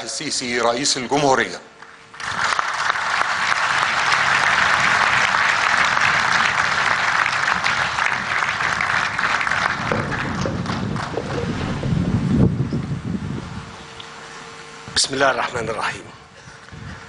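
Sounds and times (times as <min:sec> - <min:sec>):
audience applauding: 0:01.8 - 0:11.9.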